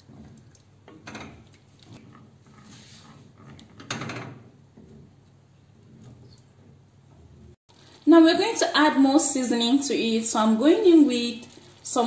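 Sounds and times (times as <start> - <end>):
wooden spoon stirring in a pot: 0.0 - 8.0.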